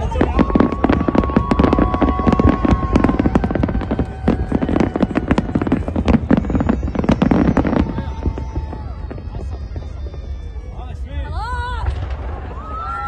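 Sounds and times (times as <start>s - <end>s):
firework whistles: 0.0s - 11.0s
fireworks bangs and crackles: 0.0s - 13.0s
low rumble: 7.6s - 13.0s.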